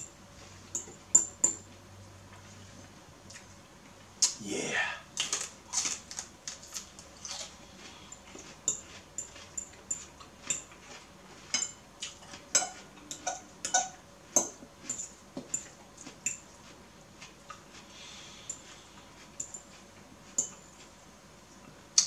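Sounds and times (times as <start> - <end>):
chewing: 3.3 - 3.6, 5.2 - 11.4, 12.0 - 13.9, 14.8 - 21.0
fork clicking and scraping bowl: 6.8 - 16.6, 17.2 - 20.9.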